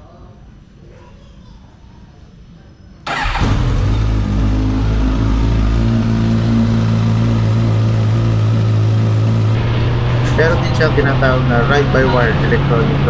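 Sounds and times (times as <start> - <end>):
motorcycle engine starting and idling: 3.1 - 12.3.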